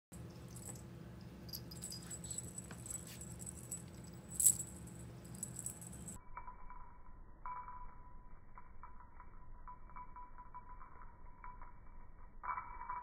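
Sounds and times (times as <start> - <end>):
low hum: 0.1 - 13.0
cat toy clicking and jangling: 1.5 - 6.2.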